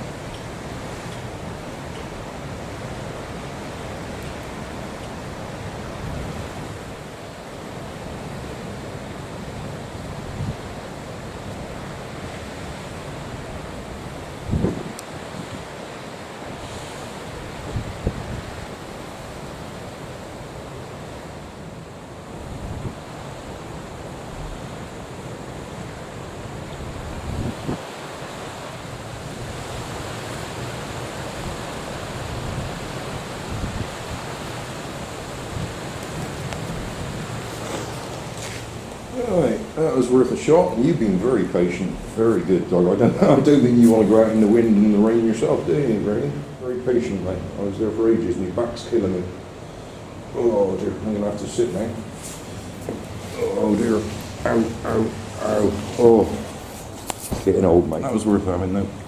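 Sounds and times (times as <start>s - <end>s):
wind buffeting microphone: 0.0s - 7.2s, 7.8s - 59.0s
choppy sea waves: 0.0s - 59.0s
wind rushing: 14.4s - 15.6s, 26.8s - 28.0s.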